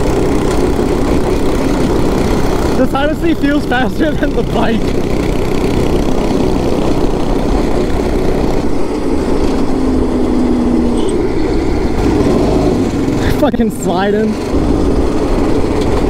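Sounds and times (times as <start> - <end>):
go-kart engine running: 0.0 - 16.0
short steady tone: 10.9 - 11.3
wind on microphone: 14.4 - 16.0.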